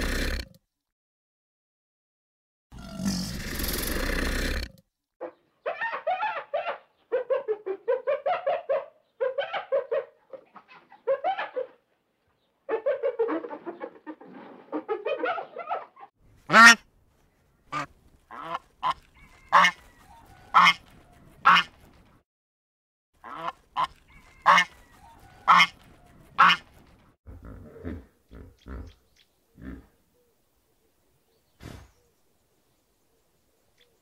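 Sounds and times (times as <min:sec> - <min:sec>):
birds honking: 0:23.2 - 0:25.8.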